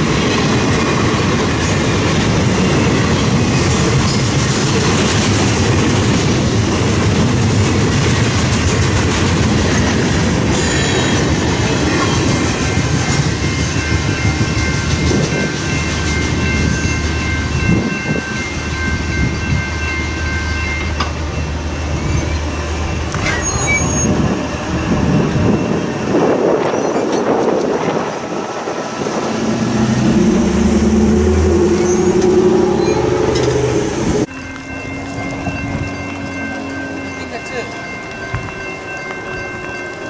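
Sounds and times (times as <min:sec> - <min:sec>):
freight train rumbling: 0:00.0 - 0:40.0
high steady ringing tones: 0:11.8 - 0:26.2, 0:29.8 - 0:40.0
car driving over crossing: 0:29.2 - 0:34.3.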